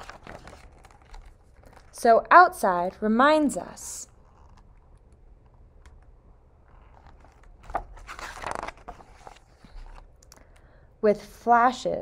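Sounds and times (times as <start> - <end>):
book page turning: 0.0 - 2.0, 4.1 - 10.2.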